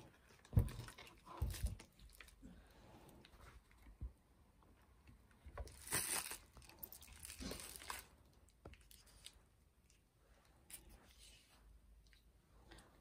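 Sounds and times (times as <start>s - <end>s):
plastic packaging crinkling: 5.6s - 8.2s.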